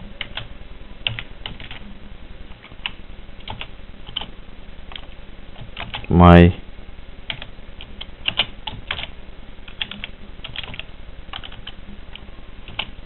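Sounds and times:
typing on keyboard: 0:00.2 - 0:01.8, 0:02.5 - 0:04.3, 0:04.9 - 0:06.1, 0:07.3 - 0:09.1, 0:09.7 - 0:13.0.

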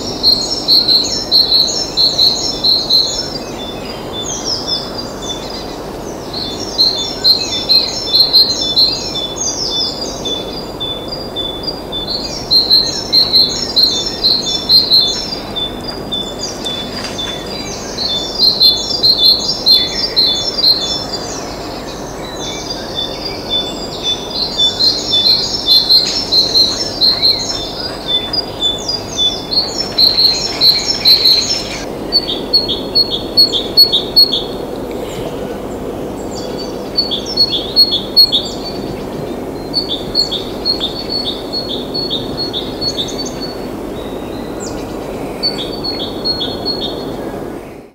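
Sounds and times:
low background hum: 0:00.0 - 0:47.9
songbird singing: 0:00.0 - 0:47.9.

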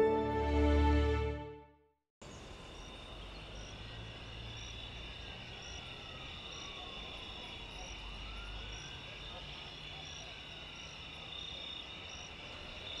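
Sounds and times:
crickets trilling: 0:02.3 - 0:13.0
distant siren: 0:04.8 - 0:09.4.

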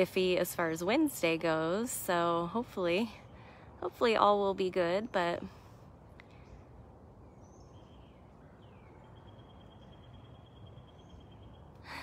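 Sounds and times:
distant bird chirps: 0:00.0 - 0:12.0.

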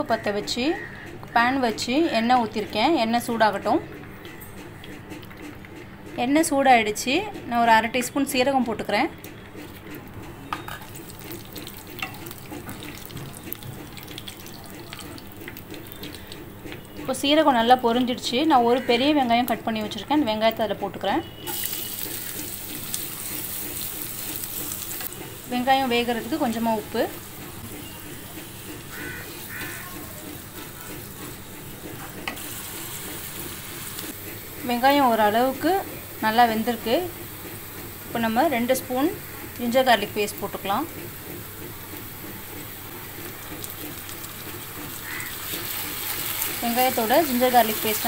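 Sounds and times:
seeds sizzling in hot oil: 0:21.5 - 0:29.8, 0:32.4 - 0:35.6, 0:41.9 - 0:48.0.

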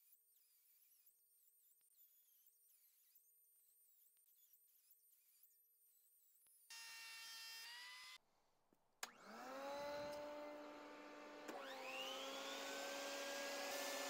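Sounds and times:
table saw motor whine: 0:06.7 - 0:08.2, 0:09.0 - 0:14.0
shop vac whining: 0:09.0 - 0:14.0.

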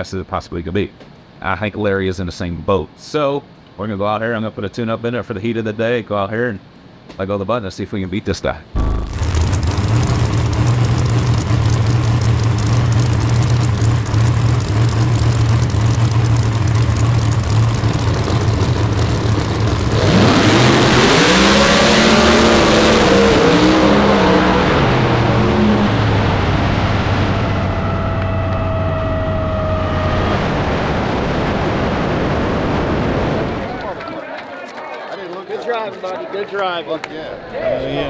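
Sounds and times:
race car engine idling and revving: 0:08.8 - 0:30.8.

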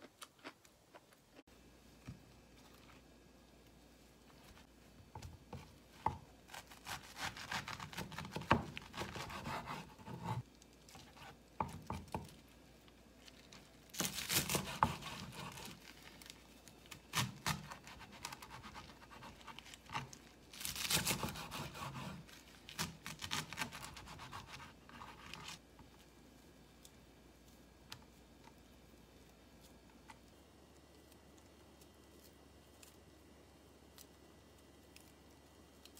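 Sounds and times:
knife slicing on cutting board: 0:06.5 - 0:10.4.

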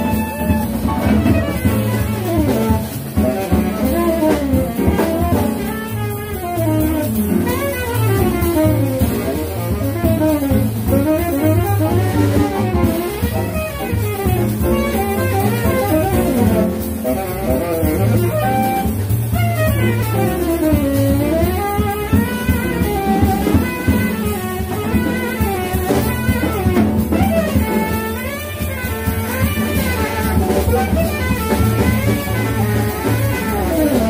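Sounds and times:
double bass: 0:00.0 - 0:34.0
drum kit: 0:00.0 - 0:34.0
piano: 0:00.0 - 0:34.0
tenor saxophone runs: 0:00.0 - 0:34.0.

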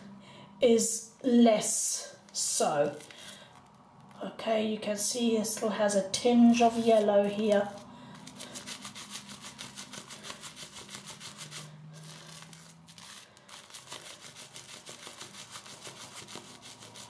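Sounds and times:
shaving brush squishing lather: 0:06.5 - 0:17.0.

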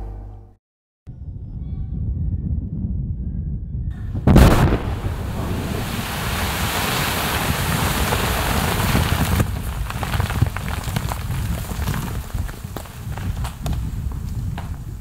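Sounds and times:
explosion blast: 0:04.1 - 0:14.8
falling debris patter: 0:04.3 - 0:15.0
water and ice raining down: 0:04.4 - 0:15.0.

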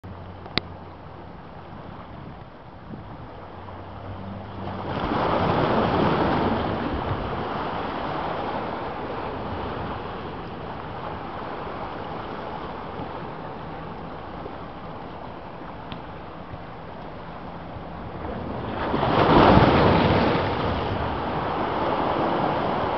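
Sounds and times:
small waves washing on rocks: 0:04.6 - 0:15.2, 0:18.1 - 0:22.9.

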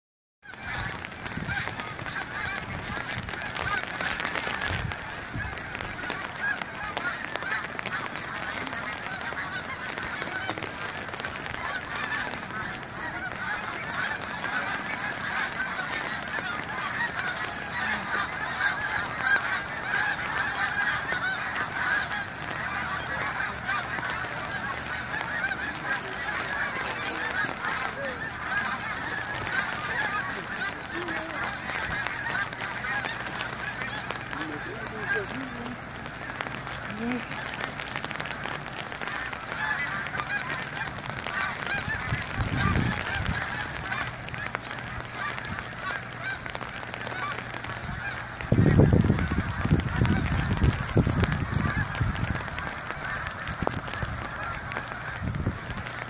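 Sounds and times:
geese honking: 0:00.4 - 0:56.0.

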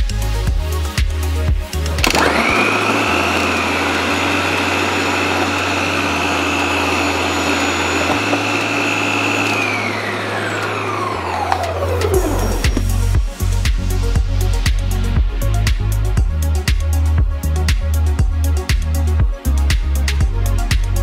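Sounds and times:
mixer grinder motor whining: 0:01.7 - 0:13.6.

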